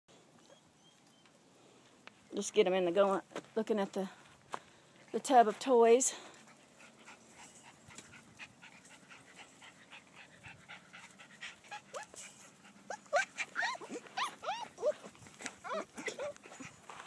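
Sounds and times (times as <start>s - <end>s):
puppies yipping and whining: 0.3s - 1.4s, 7.1s - 16.9s.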